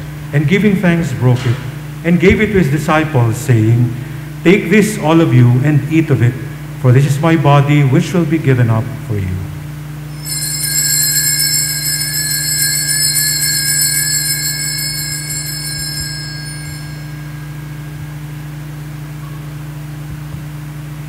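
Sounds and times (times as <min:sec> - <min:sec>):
steady low hum: 0:00.0 - 0:21.0
small bells jingling: 0:10.1 - 0:18.8.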